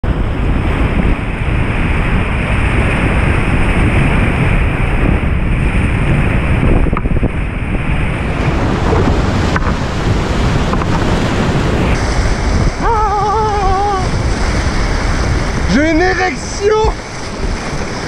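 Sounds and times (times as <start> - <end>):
water splashes: 0.0 - 18.0
wind buffeting microphone: 0.0 - 18.0
river rapids rushing: 7.6 - 18.0.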